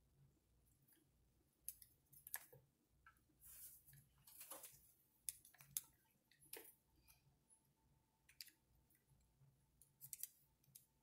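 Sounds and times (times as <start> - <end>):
small plastic parts clicking: 9.8 - 10.9.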